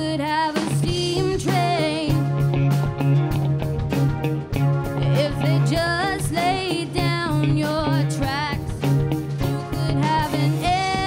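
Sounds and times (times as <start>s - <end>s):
woman singing: 0.0s - 2.3s, 5.1s - 8.8s, 9.4s - 11.0s
live band playing: 0.0s - 11.0s.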